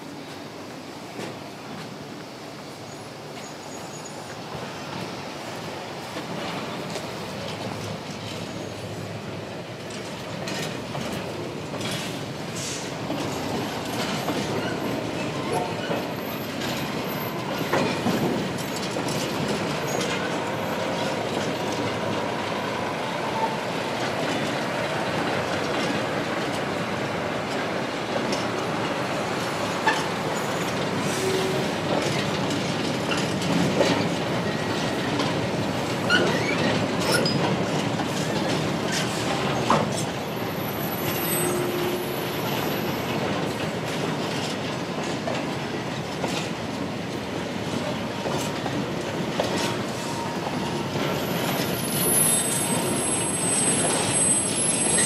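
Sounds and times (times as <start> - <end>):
faint wheel squeal: 2.9 - 4.3, 36.1 - 37.4, 40.7 - 42.6, 50.0 - 55.0
train wheels clanking over track: 5.9 - 55.0.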